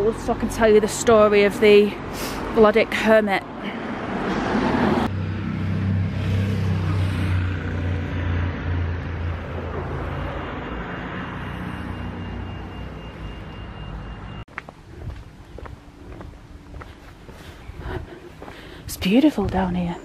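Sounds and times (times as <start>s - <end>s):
cars passing on wet road: 0.1s - 14.4s.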